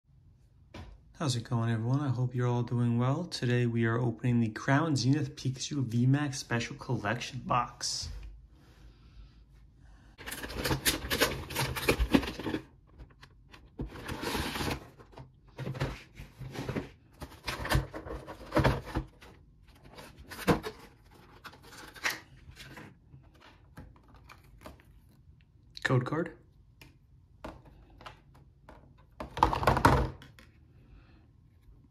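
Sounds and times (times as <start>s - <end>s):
packaging rustling and crinkling: 10.2s - 24.8s.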